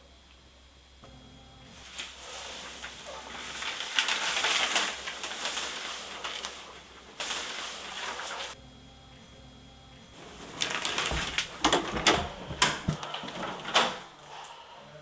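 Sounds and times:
paper rustling and crinkling: 0:01.8 - 0:08.6, 0:10.2 - 0:14.1.

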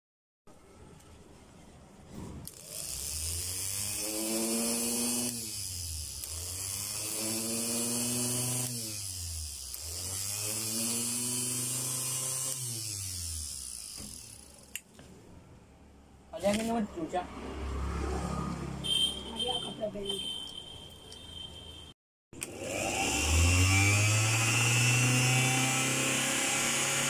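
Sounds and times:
electric motor whining: 0:02.5 - 0:14.7, 0:22.4 - 0:27.0.

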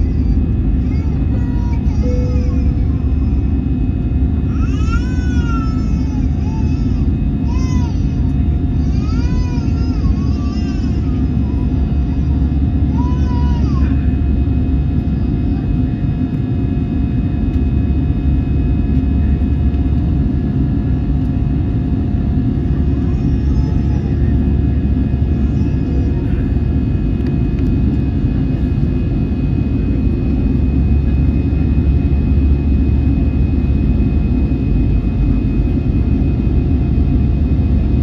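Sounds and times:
faint engine whine: 0:00.0 - 0:38.0
jet engine cabin roar: 0:00.0 - 0:38.0.

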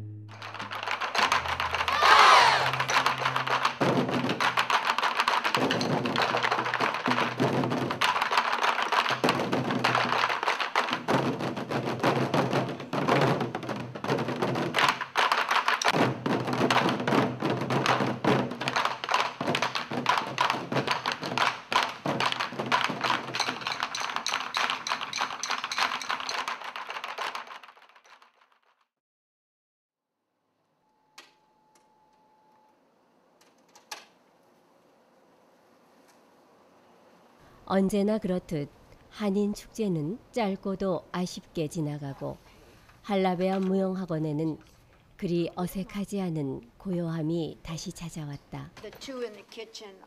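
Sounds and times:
percussion band drumming: 0:00.3 - 0:27.3.

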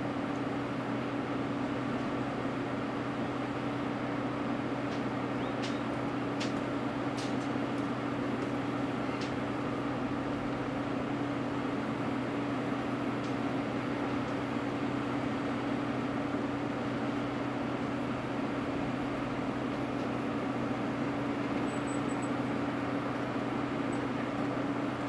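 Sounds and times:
excavator diesel engines droning: 0:00.0 - 0:25.0.

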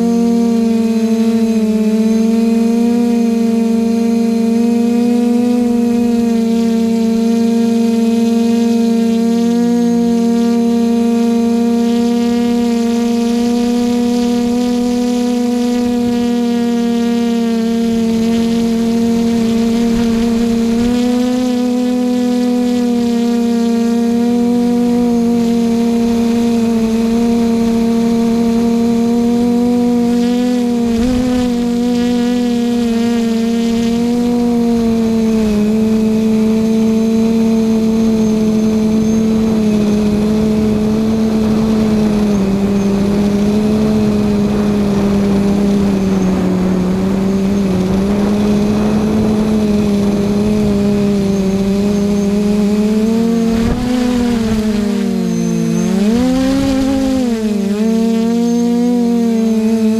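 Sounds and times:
quadcopter motors humming: 0:00.0 - 0:59.9
wind rush over microphone: 0:13.3 - 0:23.0, 0:24.1 - 0:58.2.

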